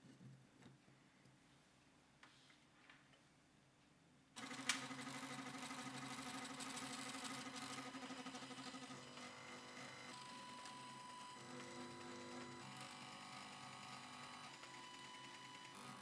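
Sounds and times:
stepper motors buzzing: 4.4 - 16.0.

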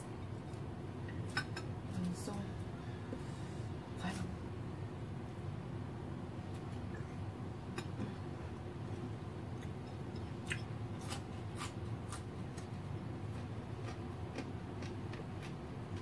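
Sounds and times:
steady low hum: 0.0 - 16.0
person chewing food: 8.9 - 16.0.

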